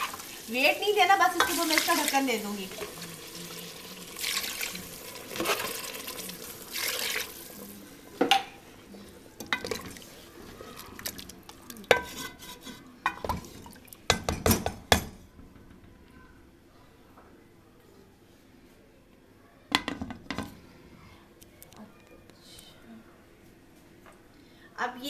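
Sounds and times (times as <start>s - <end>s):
spoon knocking and scraping pot: 1.3s - 1.7s, 11.9s - 15.2s
liquid sloshing in pot: 9.4s - 14.3s.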